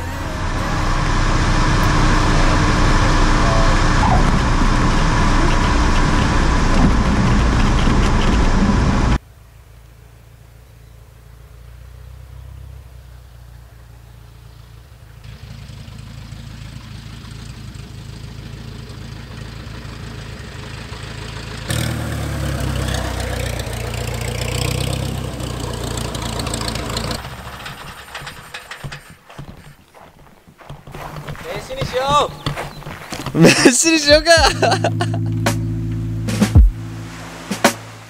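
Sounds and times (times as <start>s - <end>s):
propeller plane engine taxiing: 0.0s - 9.2s, 15.3s - 30.1s, 33.2s - 38.0s.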